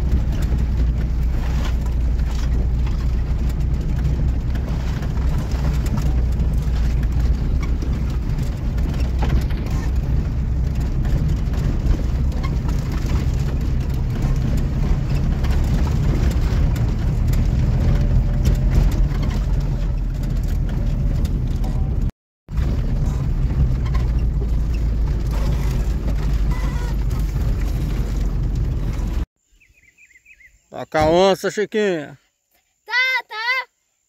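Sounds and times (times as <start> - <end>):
body and suspension rattles: 0.0 - 29.3
car engine and road drone: 0.0 - 29.3.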